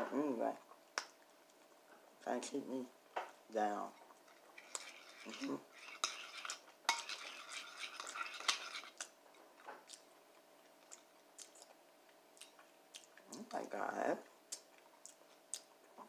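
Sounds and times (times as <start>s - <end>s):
metal spoon scraping bowl: 4.3s - 9.1s.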